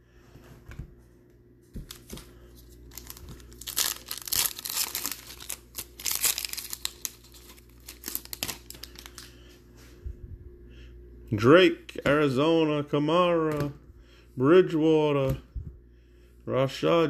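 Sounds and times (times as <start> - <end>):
foil wrapper tearing and crinkling: 2.8 - 9.3.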